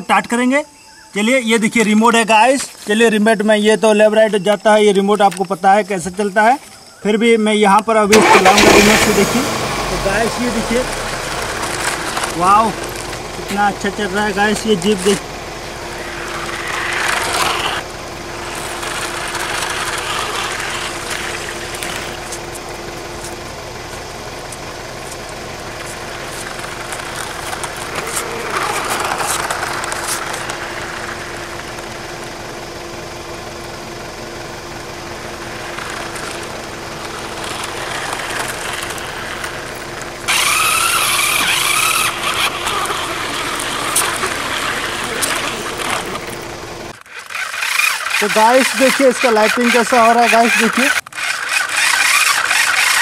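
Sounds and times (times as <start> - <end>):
toy car motor whining: 8.1 - 32.2, 35.0 - 53.0
tyres rolling over concrete: 8.1 - 53.0.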